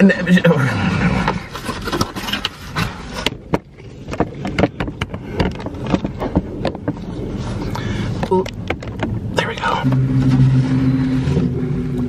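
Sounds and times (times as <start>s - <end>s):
low steady rumble: 0.0s - 12.0s
handling clicks taps and scrapes: 1.2s - 9.7s.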